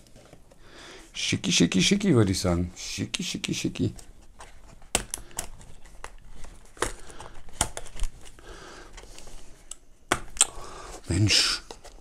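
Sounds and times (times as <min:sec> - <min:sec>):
cardboard rustling: 0:03.8 - 0:09.6.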